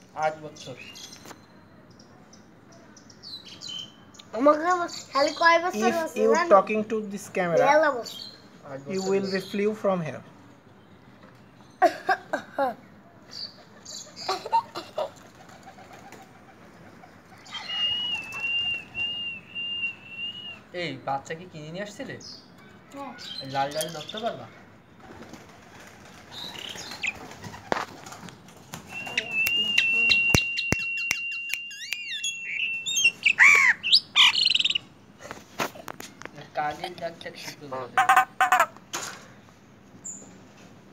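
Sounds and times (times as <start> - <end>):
myna harsh calls and squawks: 17.4 - 18.4, 31.4 - 34.9, 38.0 - 38.8
steady high whistle: 17.6 - 20.6, 29.0 - 33.0.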